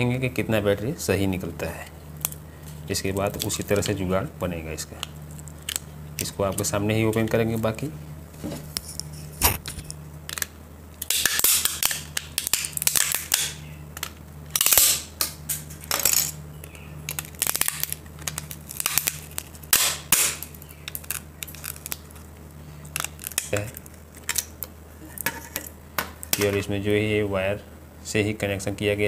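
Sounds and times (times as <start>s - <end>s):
scraping and handling noise: 4.9s - 10.5s, 15.4s - 19.7s, 20.4s - 26.7s
plastic case cracking and snapping: 10.3s - 16.1s, 17.1s - 22.3s, 22.9s - 24.7s.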